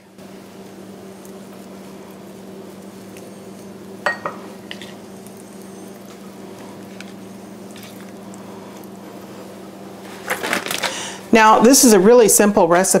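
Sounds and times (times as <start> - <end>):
kitchenware clinking: 4.0 - 5.0.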